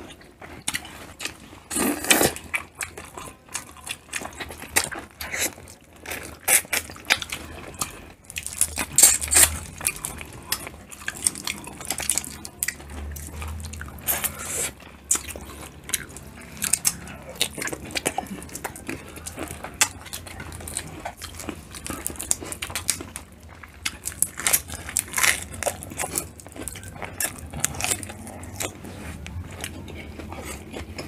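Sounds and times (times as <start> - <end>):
wet chewing and sucking: 0.0 - 31.0.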